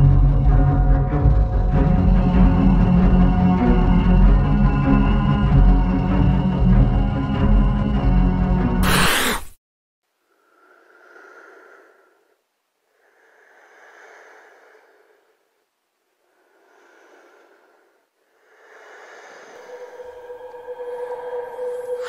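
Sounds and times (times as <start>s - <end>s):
slow heavy breathing: 10.2s - 22.0s.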